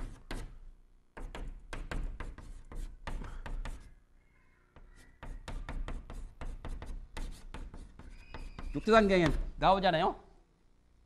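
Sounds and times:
chalk tapping on a blackboard: 0.0s - 3.9s, 4.8s - 9.5s.

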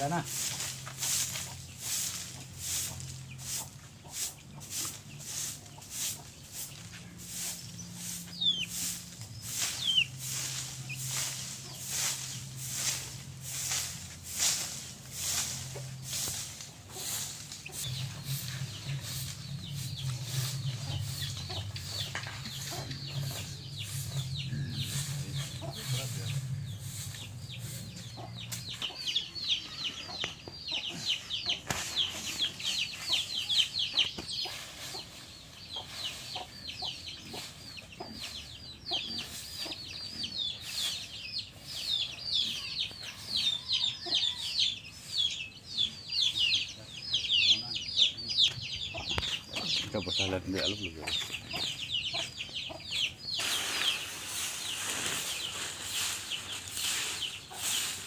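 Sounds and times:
birds chirping: 0.0s - 58.0s
broom sweeping dirt: 0.0s - 58.0s
low drone: 7.0s - 28.7s.

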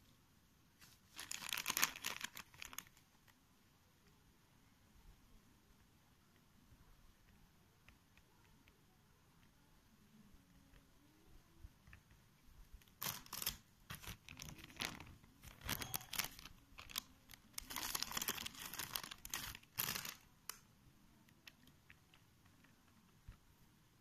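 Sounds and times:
plastic bag crinkling: 0.8s - 3.0s, 12.8s - 20.3s.

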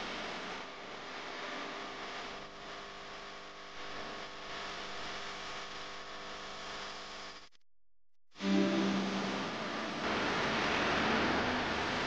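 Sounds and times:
steady hiss: 8.4s - 12.0s.

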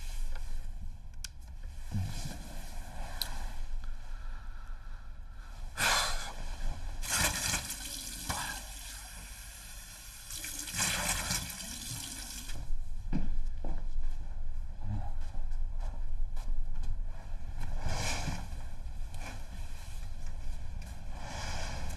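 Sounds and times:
bedding and clothing rustling: 12.1s - 21.9s.

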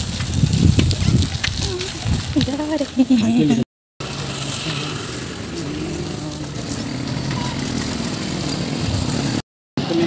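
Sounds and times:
bicycle road noise: 0.0s - 10.0s
vehicle engine humming: 2.5s - 10.0s.

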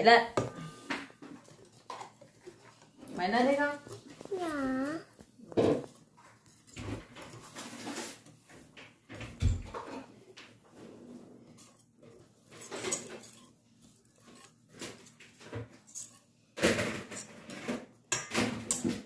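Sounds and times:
whisk scraping metal bowl: 10.7s - 16.3s.

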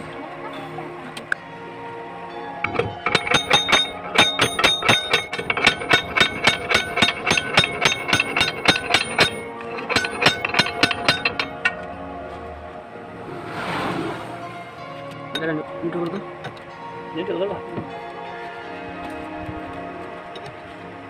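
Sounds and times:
hammer striking metal: 2.6s - 11.8s.

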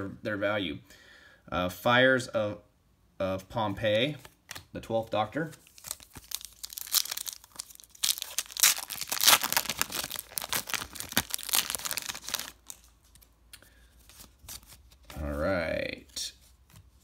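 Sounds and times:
foil wrapper tearing and crinkling: 5.6s - 13.0s.

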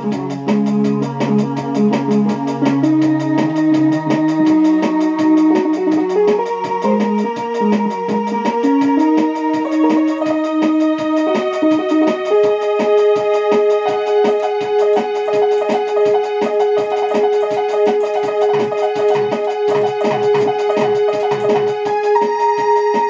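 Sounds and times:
electronic keyboard playing: 0.0s - 23.0s
steady beat: 9.2s - 22.2s.

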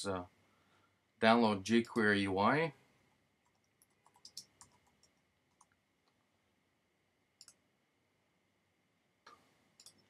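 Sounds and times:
computer keystrokes: 3.4s - 5.8s, 7.4s - 7.6s, 9.8s - 10.0s.

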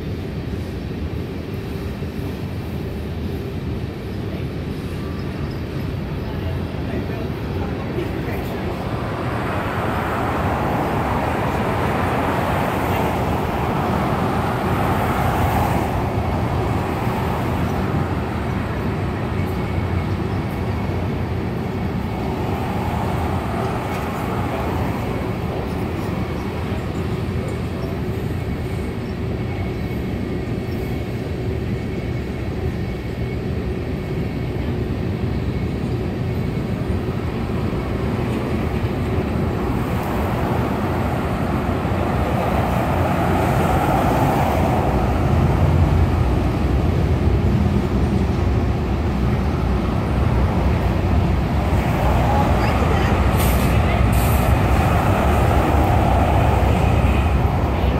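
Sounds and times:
freight train wheels rumbling: 0.0s - 57.9s
car passing: 8.0s - 27.3s, 37.8s - 57.9s.

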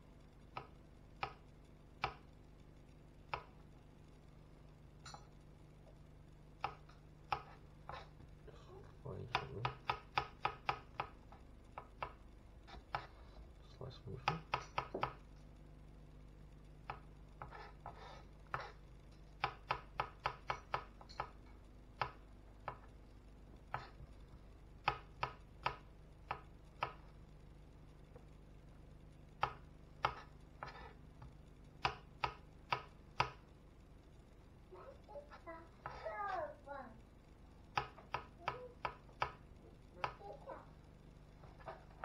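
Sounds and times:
knife chopping on plastic board: 9.3s - 11.2s, 14.2s - 15.2s.

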